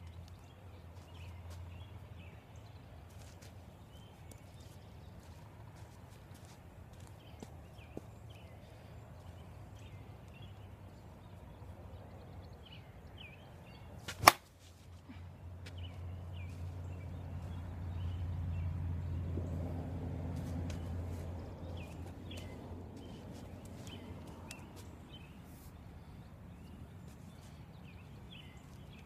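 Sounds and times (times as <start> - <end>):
birds chirping faintly: 0.0 - 29.0
bat cracking a softball: 14.0 - 14.6.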